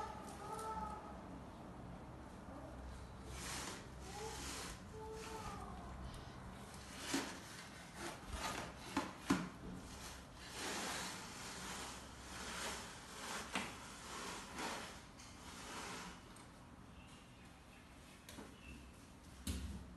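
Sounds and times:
plastic basket scraping on tiles: 0:03.2 - 0:05.6, 0:06.6 - 0:16.5.

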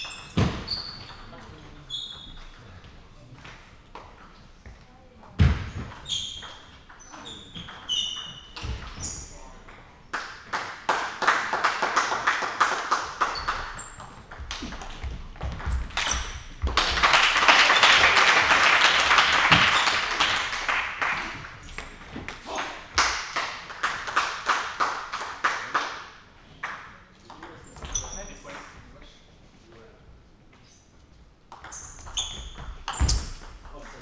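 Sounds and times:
spectator applause: 0:16.8 - 0:21.3.

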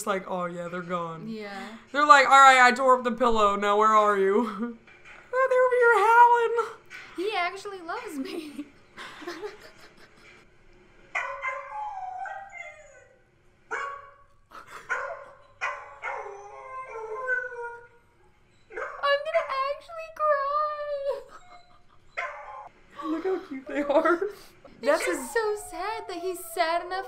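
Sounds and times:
dogs howling: 0:11.2 - 0:14.2, 0:14.9 - 0:18.0, 0:21.2 - 0:22.7, 0:24.8 - 0:27.0.

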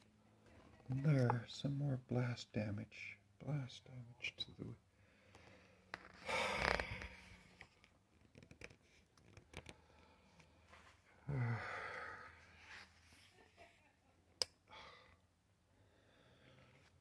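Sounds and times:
man exhaling heavily: 0:11.3 - 0:12.4.

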